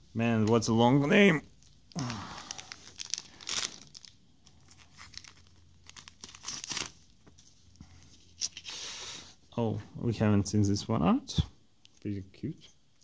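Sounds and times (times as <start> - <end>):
foil wrapper tearing and crinkling: 2.0 - 7.1.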